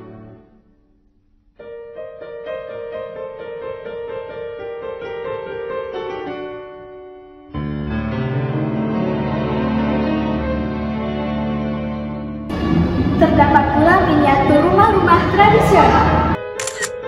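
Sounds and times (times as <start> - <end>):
string music: 7.6 - 17.0.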